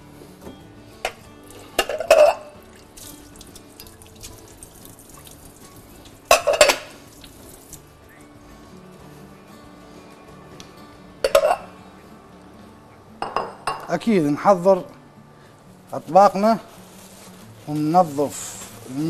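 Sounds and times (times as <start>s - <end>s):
soft background music: 0.0s - 19.0s
ceramic plates clattering: 1.8s - 2.6s, 6.3s - 7.0s, 11.2s - 11.7s, 13.2s - 13.9s.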